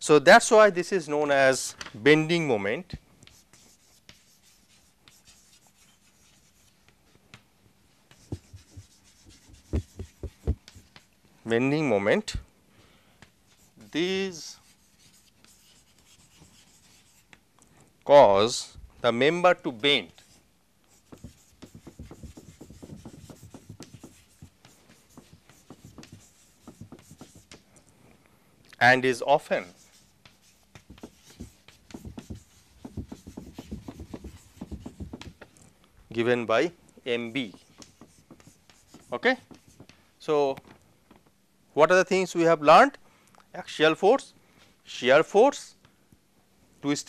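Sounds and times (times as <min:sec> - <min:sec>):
chalk scratching on blackboard: 0:03.2 - 0:07.0, 0:08.1 - 0:11.1, 0:13.5 - 0:17.3, 0:20.1 - 0:27.6, 0:29.5 - 0:35.4, 0:37.1 - 0:40.0.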